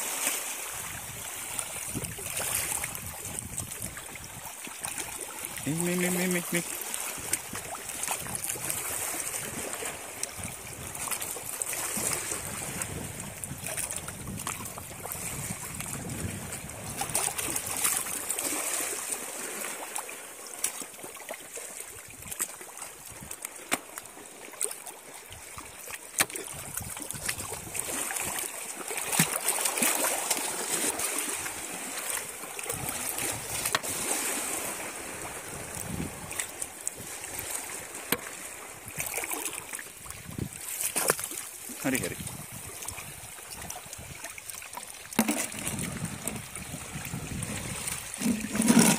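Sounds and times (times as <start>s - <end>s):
seawater sloshing around wading feet: 16.6s - 48.9s.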